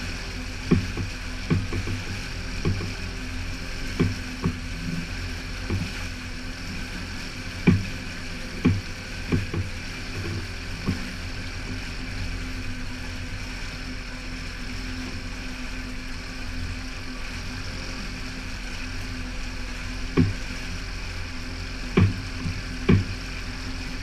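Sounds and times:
outboard motor running: 0.0 - 24.0
water rushing: 0.0 - 24.0
sharp thumps: 22.0 - 23.1.

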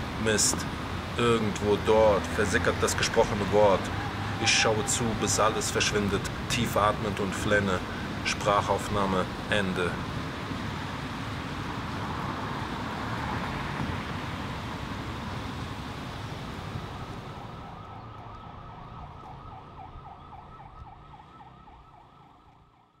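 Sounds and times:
city street traffic: 0.0 - 23.0
warbling siren: 2.7 - 7.4, 16.6 - 23.0.

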